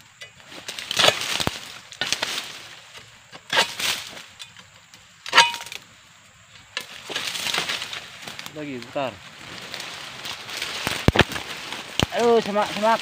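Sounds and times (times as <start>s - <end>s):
blade crunching through stalks: 0.4s - 4.6s, 6.8s - 13.0s
metallic ring: 5.3s - 5.8s.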